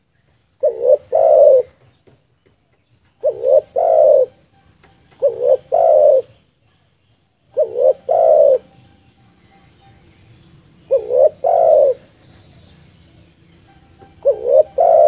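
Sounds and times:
dove cooing: 0.6s - 1.9s, 3.1s - 4.4s, 5.0s - 6.5s, 7.5s - 9.0s, 10.8s - 12.2s, 14.0s - 15.0s.

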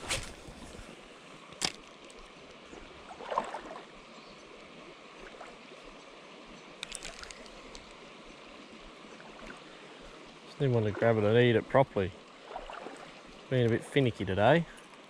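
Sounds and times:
river water running: 0.0s - 15.0s
faint ticks: 6.8s - 8.0s.

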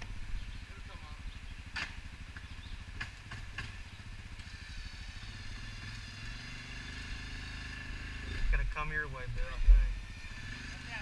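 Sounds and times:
quad engine idling: 0.0s - 11.0s.

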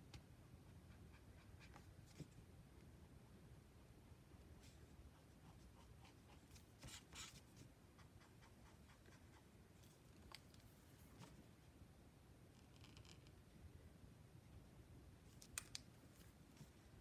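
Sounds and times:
brush pen scratching on paper: 5.2s - 9.5s.

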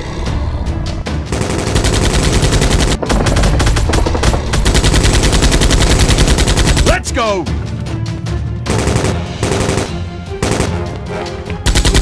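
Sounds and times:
machine-gun firing: 1.3s - 7.0s, 8.7s - 10.9s, 11.6s - 12.0s.

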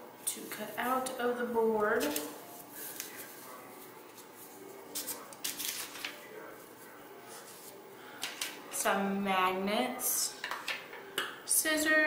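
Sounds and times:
paper rustling on cork board: 1.9s - 6.7s.

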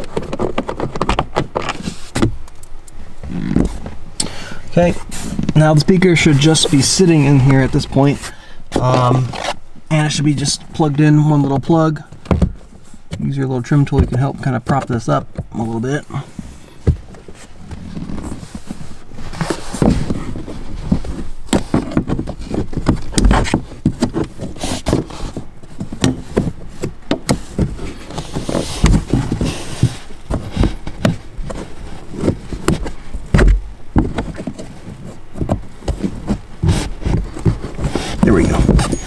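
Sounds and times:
plastic tool prying and scraping: 0.0s - 2.5s, 19.4s - 39.0s
rustling: 0.0s - 39.0s.

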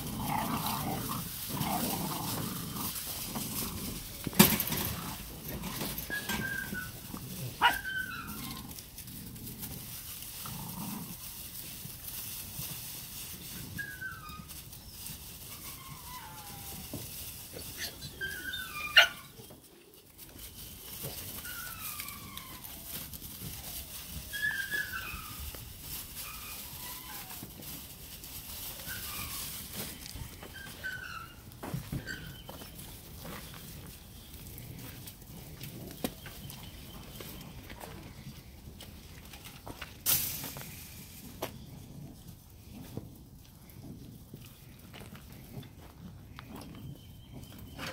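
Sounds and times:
puppies yipping and whining: 0.0s - 38.5s, 45.8s - 47.9s
puppy yelps: 6.0s - 8.8s, 13.8s - 14.6s, 15.5s - 16.9s, 17.8s - 19.5s, 21.4s - 25.6s, 26.2s - 27.5s, 30.4s - 31.4s.

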